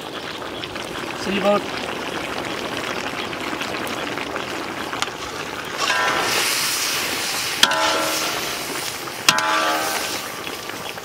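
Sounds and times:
meat sizzling in a pan: 0.0 - 11.0
metal ladle stirring: 5.8 - 10.5.

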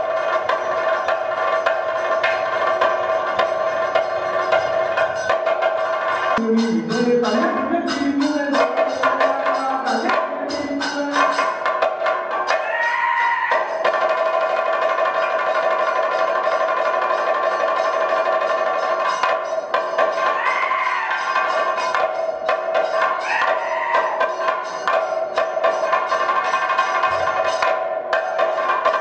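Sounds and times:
cymbals ringing: 0.0 - 29.0
hand drum beaten quickly: 0.0 - 29.0
person singing: 6.4 - 11.6.

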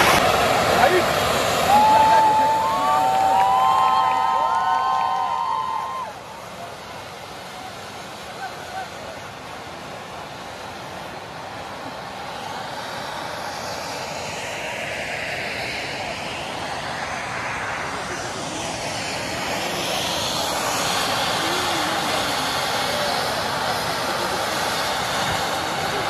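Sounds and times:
fireworks spraying sparks hissing: 0.0 - 9.9, 20.6 - 26.0.

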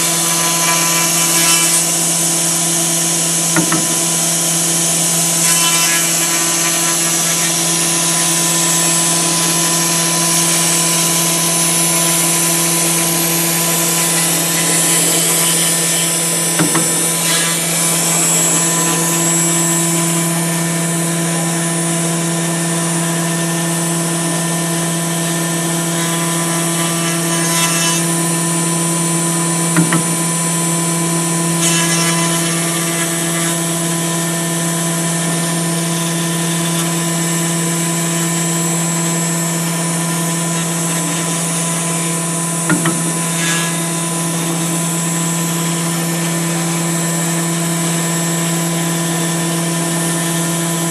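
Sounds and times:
hiss of bit cutting foam: 0.0 - 20.8
router spindle whine: 0.0 - 50.9.

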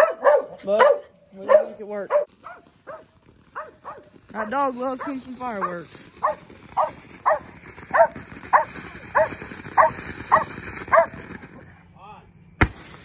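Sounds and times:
dog barking: 0.0 - 4.1, 5.0 - 11.2
firework fountain hissing: 2.2 - 11.8, 12.6 - 13.0.

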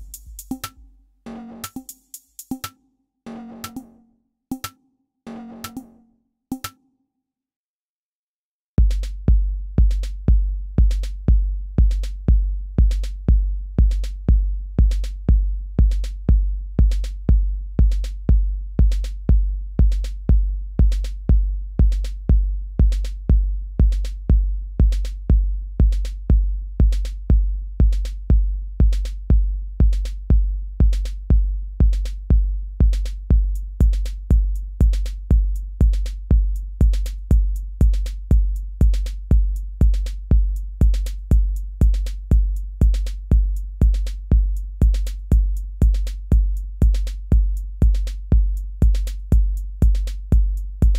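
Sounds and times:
drum machine beat: 0.0 - 2.8, 3.4 - 3.9, 4.5 - 5.9, 6.5 - 6.8, 8.8 - 50.9.

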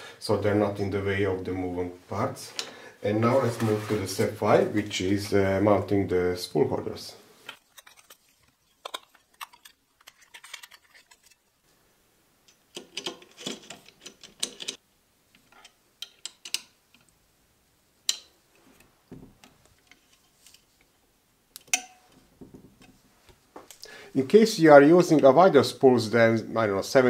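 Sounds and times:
plastic parts clicking and rattling: 7.5 - 11.4, 12.5 - 14.8, 15.4 - 17.1.

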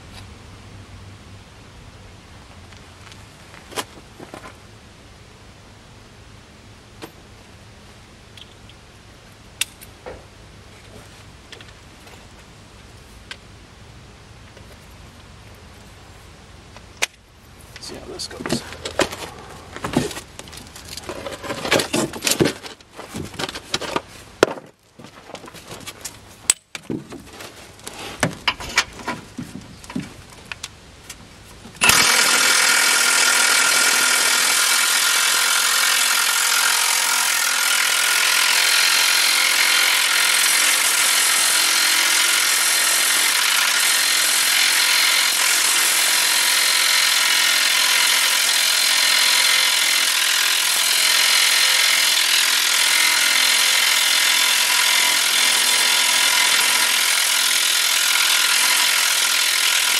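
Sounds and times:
power tool running: 31.8 - 59.9.

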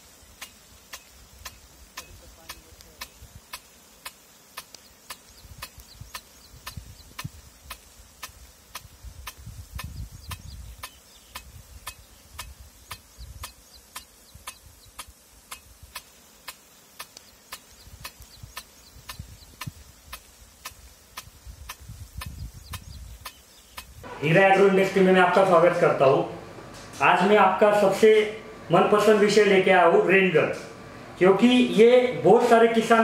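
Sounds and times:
sprinkler arm ticking: 0.1 - 24.0.

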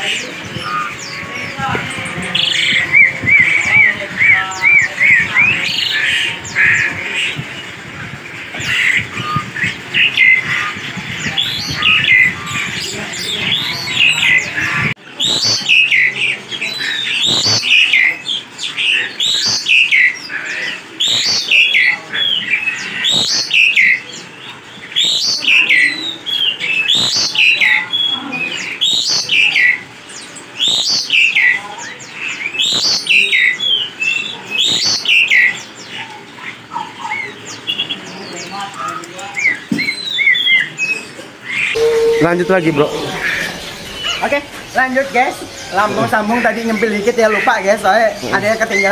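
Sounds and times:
songbirds chirping: 0.0 - 48.9
bird whistling downward phrase: 41.7 - 46.1.

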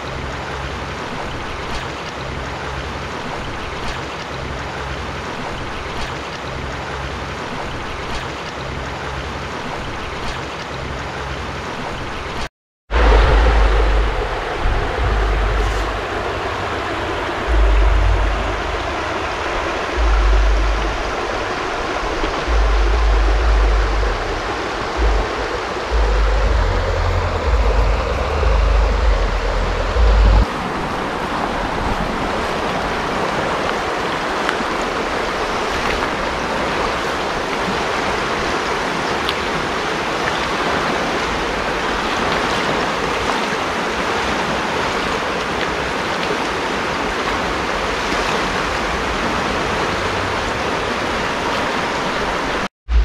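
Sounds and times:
river water running over rocks: 0.0 - 52.7
flooded river rushing: 0.0 - 53.0
wind buffeting microphone: 12.9 - 53.0.

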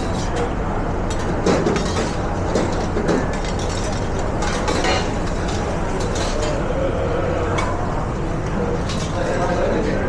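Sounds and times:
metal utensils clinking on pans: 0.0 - 6.7, 8.8 - 9.6
kitchen extraction hum: 0.0 - 10.0.

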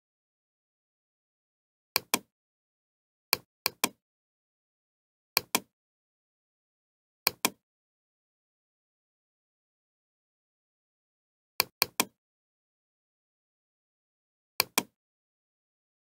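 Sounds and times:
computer mouse clicking: 2.0 - 2.3, 3.4 - 4.0, 5.4 - 5.7, 7.3 - 7.6, 11.6 - 12.2, 14.6 - 15.0.

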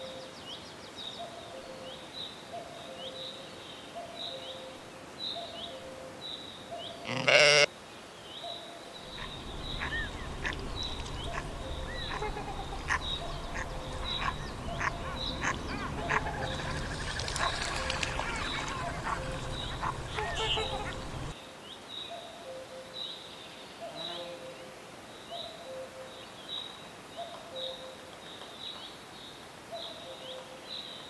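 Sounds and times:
sheep bleating: 7.0 - 7.7
short clicks and small calls: 9.2 - 21.3.

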